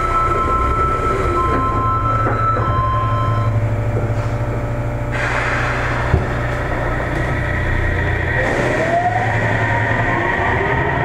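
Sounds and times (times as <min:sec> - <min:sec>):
train equipment humming: 0:00.0 - 0:11.0.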